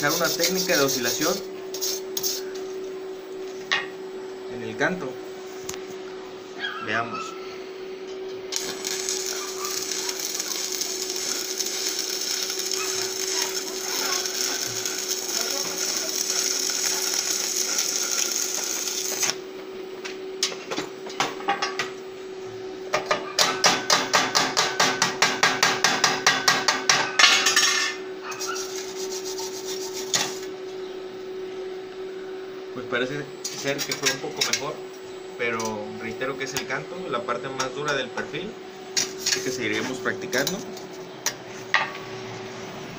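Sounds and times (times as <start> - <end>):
welding arc crackling and hissing: 0.0 - 2.5, 8.5 - 19.4, 28.4 - 30.5.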